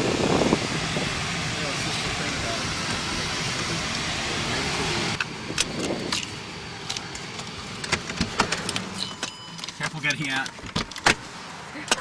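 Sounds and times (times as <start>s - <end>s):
car cabin noise: 0.0s - 12.0s
clicks and rattles of handled objects: 5.6s - 11.1s.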